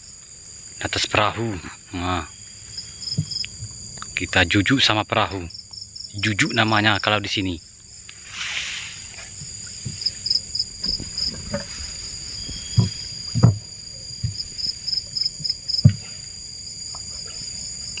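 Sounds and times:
crickets chirping: 0.0s - 18.0s
dull knocks: 10.8s - 11.8s, 12.4s - 14.5s, 15.4s - 16.1s.

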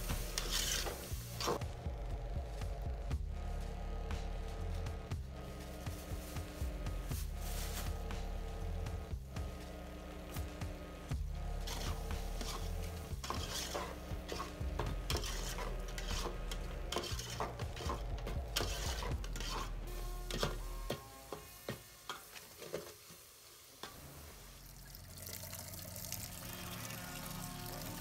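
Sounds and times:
food sizzling: 0.0s - 1.6s, 11.5s - 28.0s
spoon scraping steel pot: 0.3s - 1.6s, 11.6s - 21.0s.

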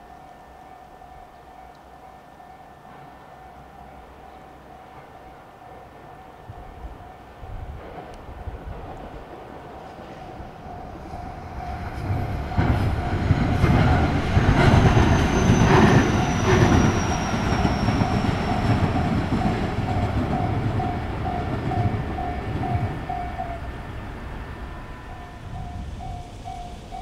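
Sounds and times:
electric train rumbling past: 0.0s - 27.0s
level crossing bell ringing: 17.4s - 23.7s, 24.9s - 27.0s.

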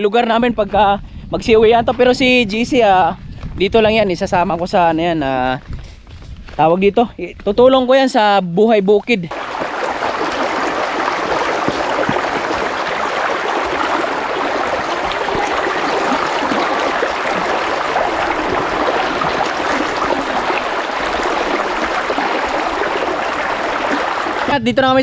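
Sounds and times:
running water rushing: 9.3s - 24.6s.

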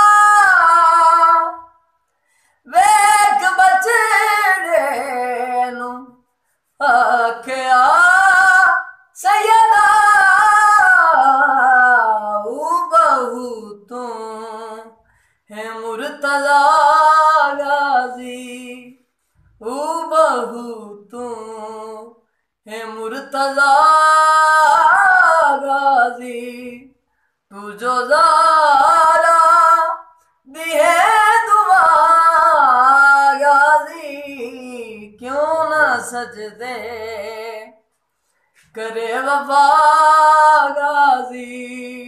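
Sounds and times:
man singing unaccompanied lament: 6.8s - 19.0s, 27.5s - 37.8s.

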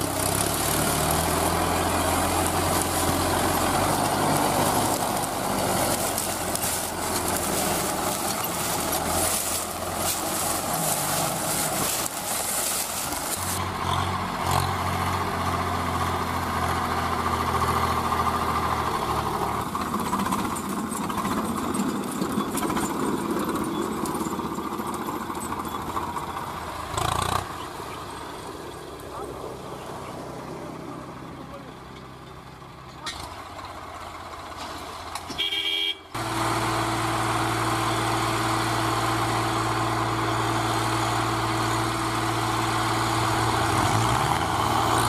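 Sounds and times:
tractor engine idling: 0.0s - 45.0s.

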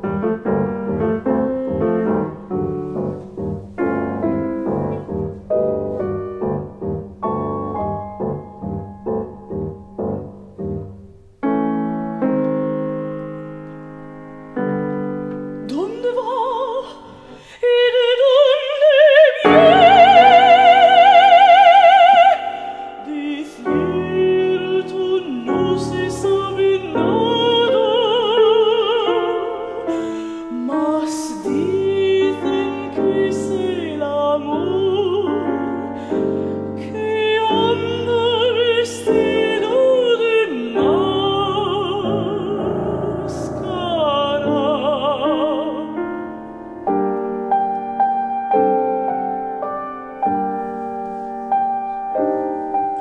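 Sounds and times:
piano accompaniment: 0.0s - 53.0s
woman singing with vibrato: 15.6s - 46.4s.

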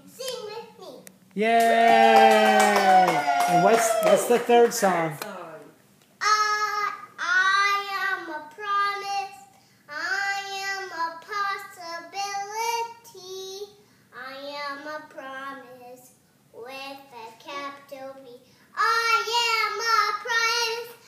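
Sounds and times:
toddler girl singing: 6.2s - 21.0s.

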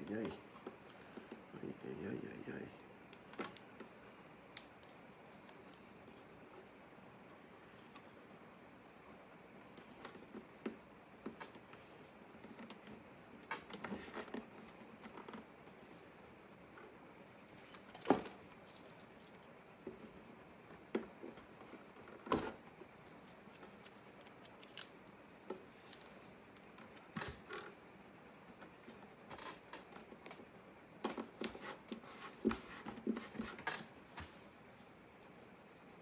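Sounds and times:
masking tape tearing and crackling: 23.3s - 25.1s.

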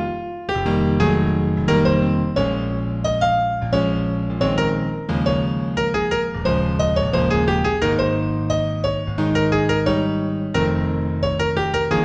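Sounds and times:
slow piano-toned keyboard music: 0.0s - 12.0s.

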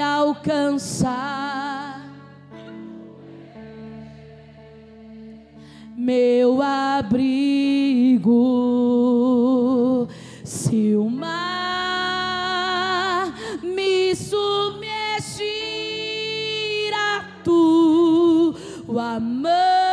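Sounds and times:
woman singing worship song: 0.0s - 2.3s, 5.2s - 19.9s
singer breathing: 5.5s - 6.0s, 10.1s - 10.5s, 18.5s - 18.9s.

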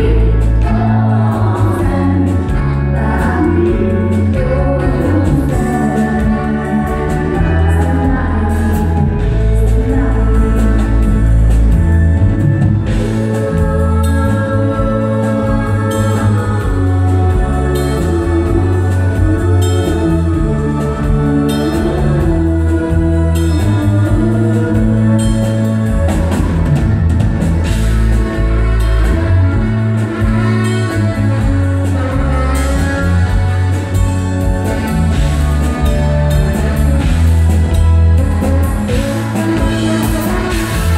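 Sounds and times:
people singing: 0.0s - 11.3s
drum kit: 0.0s - 40.9s
electric guitar: 0.0s - 40.9s
keyboard: 0.0s - 40.9s.

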